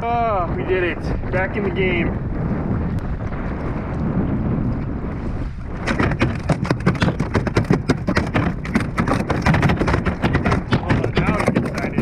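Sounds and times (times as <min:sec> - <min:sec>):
wind on microphone: 0:00.0 - 0:12.0
fish thrashing against kayak: 0:05.6 - 0:12.0.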